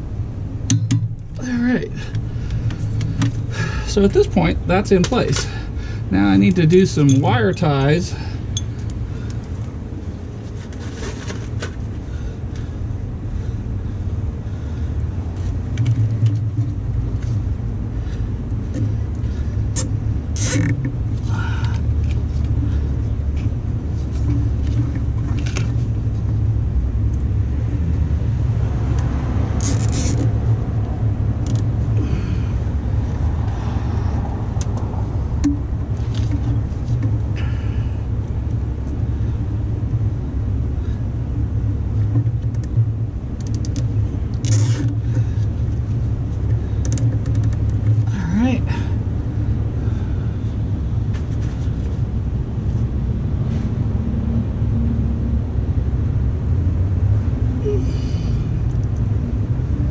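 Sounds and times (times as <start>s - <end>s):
low rumble: 0.0s - 46.8s
hands fastening wire ties: 43.4s - 45.0s, 46.8s - 47.9s.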